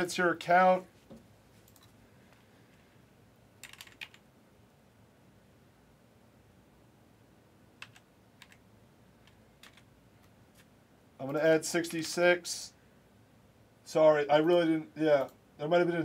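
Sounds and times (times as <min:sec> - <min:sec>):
keyboard typing clicks: 0:03.6 - 0:04.2, 0:07.8 - 0:08.6, 0:09.2 - 0:10.4.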